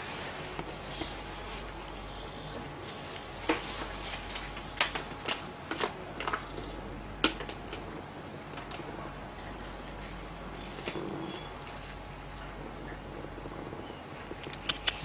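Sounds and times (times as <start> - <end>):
sharp irregular clicks: 14.4 - 15.0.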